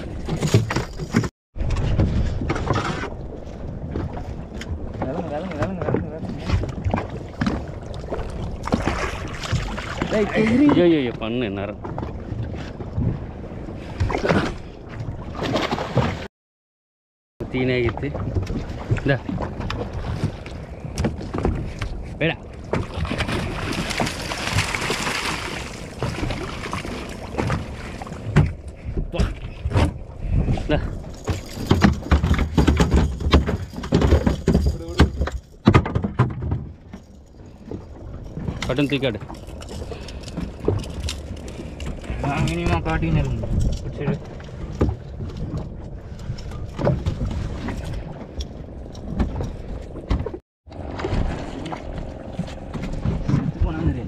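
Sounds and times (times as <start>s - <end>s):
water splashing against boat: 0.0s - 16.3s, 17.4s - 54.0s
wind rumbling on microphone: 17.4s - 54.0s
knocks on boat: 31.3s - 36.8s.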